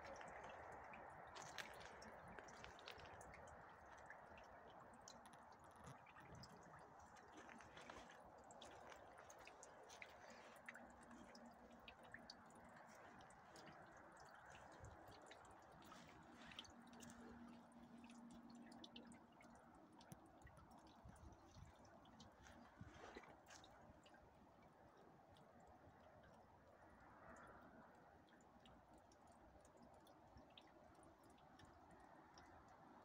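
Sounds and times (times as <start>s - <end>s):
faint low hum: 0.0s - 33.0s
light ticks: 0.0s - 33.0s.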